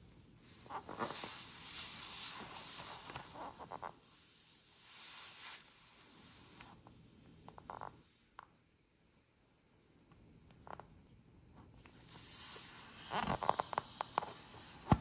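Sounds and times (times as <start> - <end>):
rubber glove rustling and squeaking: 0.4 - 6.8, 11.9 - 15.0
air hissing: 11.8 - 15.0.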